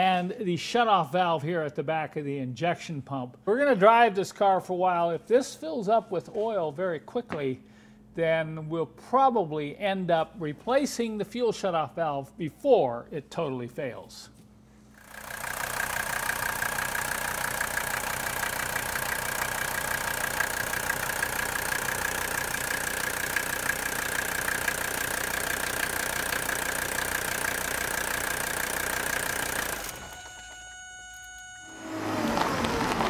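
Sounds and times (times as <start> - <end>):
diesel engine idling: 15.0 - 33.0
high-pitched whine: 27.6 - 33.0.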